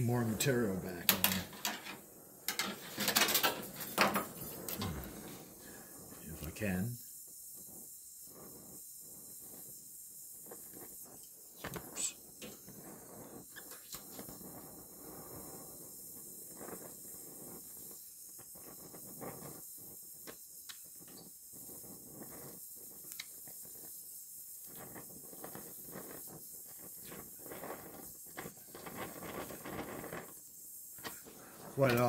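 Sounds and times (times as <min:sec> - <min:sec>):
molten metal crackling: 0:00.0 - 0:32.0
welding torch hiss: 0:00.0 - 0:32.0.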